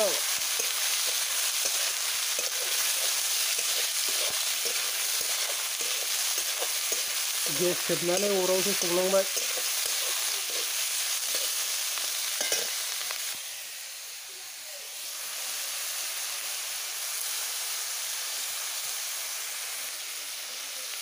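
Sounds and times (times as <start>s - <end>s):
stirring strokes scraping a wok: 0.0s - 12.9s
chicken sizzling in oil: 0.0s - 21.0s.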